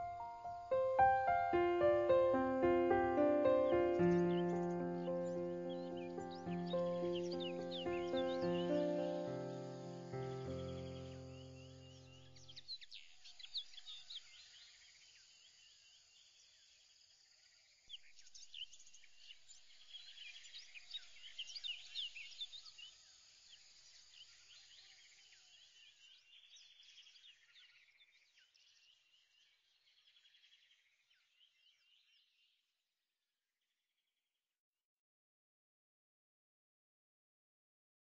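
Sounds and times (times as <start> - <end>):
birds chirping: 0.0 - 13.5
insect trills: 6.2 - 12.0.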